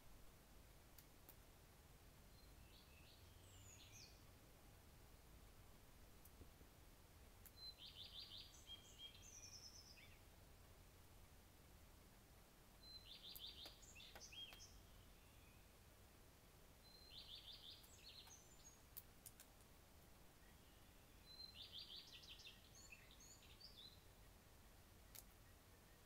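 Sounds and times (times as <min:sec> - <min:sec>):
soft clicks: 0:01.0 - 0:01.4, 0:07.4 - 0:07.6, 0:13.3 - 0:14.7, 0:17.8 - 0:19.7, 0:25.1 - 0:25.4
songbird singing: 0:01.0 - 0:11.4, 0:12.7 - 0:26.0.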